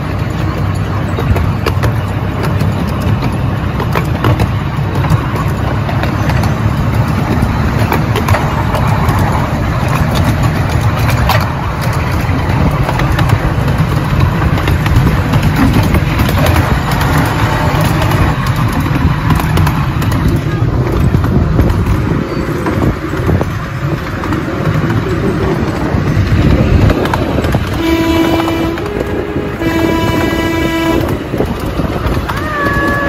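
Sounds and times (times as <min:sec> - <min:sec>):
miniature train rumbling: 0:00.0 - 0:33.0
train horn tooting: 0:27.6 - 0:31.8.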